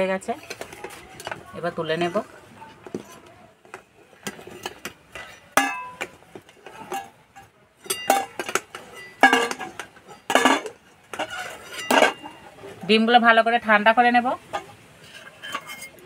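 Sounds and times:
steel ladle clinking on metal: 4.2s - 12.5s, 14.5s - 16.0s.

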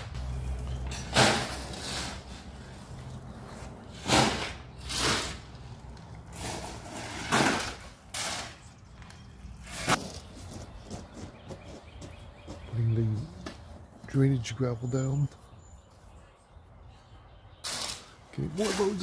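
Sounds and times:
gravel being shoveled and poured: 1.1s - 2.6s, 3.9s - 5.5s, 6.3s - 8.6s.

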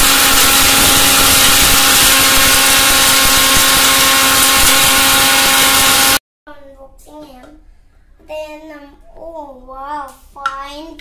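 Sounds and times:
mixer grinder motor whine: 0.0s - 6.2s.

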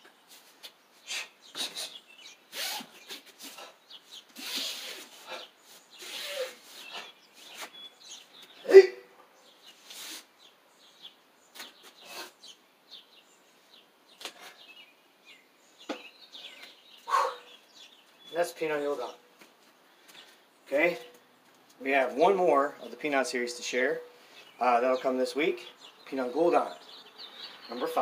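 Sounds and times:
faint bird chirps: 0.9s - 19.3s.

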